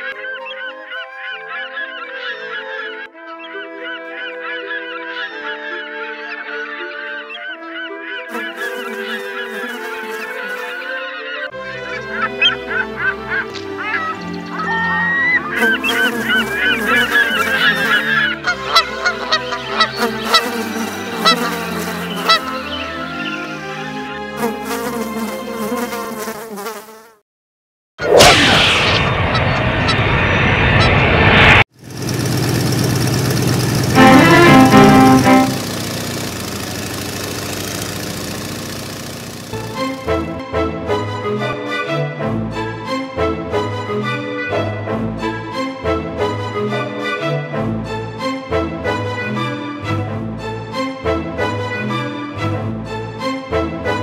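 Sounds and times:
flock of birds calling: 0:00.0 - 0:24.3
fly buzzing: 0:08.3 - 0:11.0, 0:15.4 - 0:22.8, 0:24.4 - 0:27.2, 0:34.0 - 0:40.2
loud steady rushing noise: 0:28.2 - 0:40.0
sustained music chords: 0:33.7 - 0:35.8.

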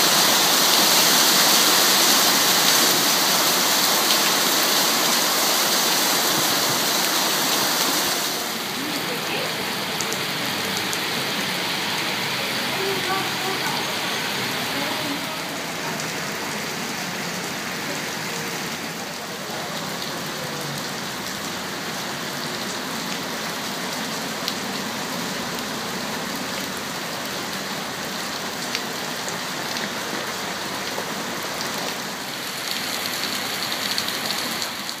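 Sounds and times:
heavy rain on pavement: 0:00.0 - 0:35.0.

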